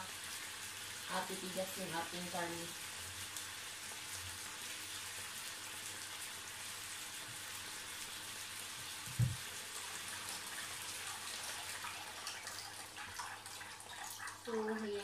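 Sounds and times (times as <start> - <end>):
meat sizzling in frying pan: 0.0 - 15.0
dull thump: 9.1 - 9.4.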